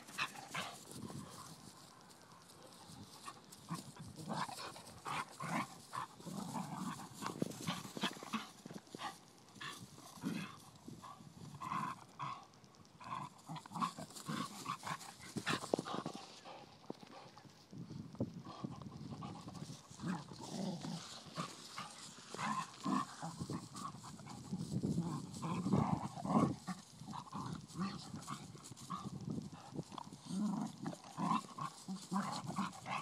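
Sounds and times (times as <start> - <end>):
scuffling on grass: 0.0 - 11.9, 19.1 - 33.0.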